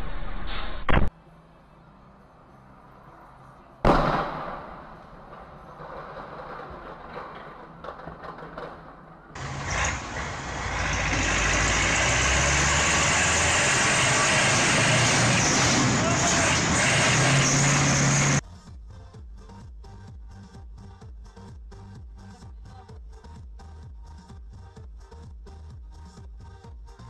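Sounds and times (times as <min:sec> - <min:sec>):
road noise: 0:01.0 - 0:18.4
loud bang: 0:03.8 - 0:05.5
tractor diesel engine running: 0:09.4 - 0:18.4.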